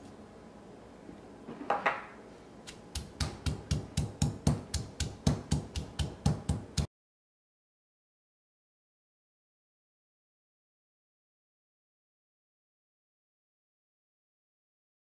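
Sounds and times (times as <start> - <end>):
stone pestle pounding in mortar: 2.8 - 6.9.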